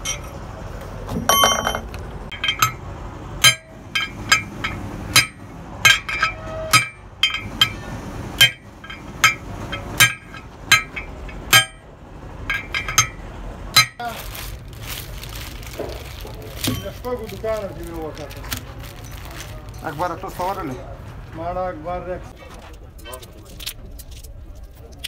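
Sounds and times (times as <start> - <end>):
metal parts rattling: 0.0 - 0.4, 1.2 - 2.8, 3.4 - 20.8
steel bar clanking on metal: 0.0 - 0.4, 1.1 - 2.8, 3.4 - 14.1.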